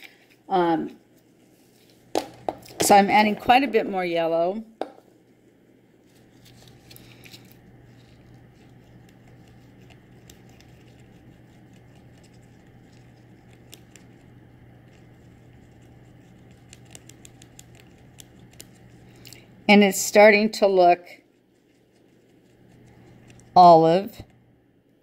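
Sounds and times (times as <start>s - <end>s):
steady low hum: 0.0s - 25.0s
toothpick clicking in plastic cup: 16.5s - 18.7s.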